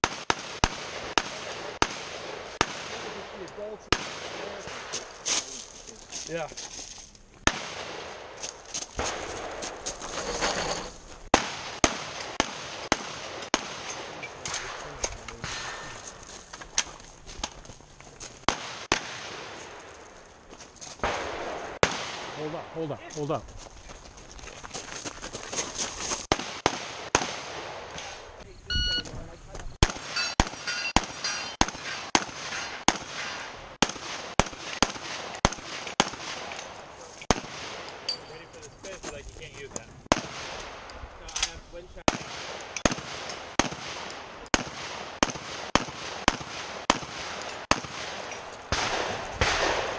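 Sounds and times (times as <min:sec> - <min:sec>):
gunshots with echo: 0:00.0 - 0:05.2, 0:11.3 - 0:16.0, 0:21.0 - 0:23.0, 0:26.3 - 0:28.4, 0:29.8 - 0:38.1, 0:42.0 - 0:49.9.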